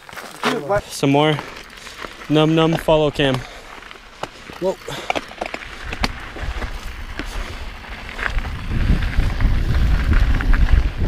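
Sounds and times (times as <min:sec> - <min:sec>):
bike clicks and rattles: 0:00.0 - 0:11.0
wind rumble on microphone: 0:05.6 - 0:11.0.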